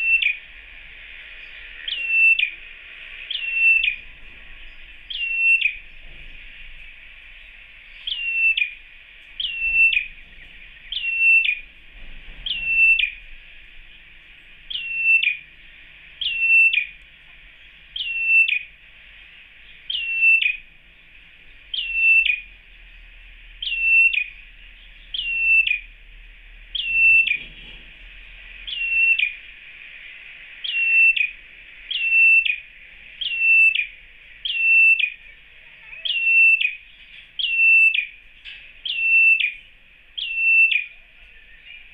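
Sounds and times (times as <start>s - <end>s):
bird giving sharp calls: 0.0s - 0.5s, 1.8s - 4.0s, 5.1s - 5.9s, 8.0s - 11.7s, 12.5s - 13.2s, 14.7s - 15.6s, 16.2s - 17.0s, 18.0s - 18.8s, 19.8s - 20.7s, 21.7s - 22.5s, 23.6s - 25.9s, 26.7s - 27.4s, 28.6s - 29.8s, 30.5s - 38.2s, 38.8s - 41.9s
steady high hiss: 0.0s - 41.9s.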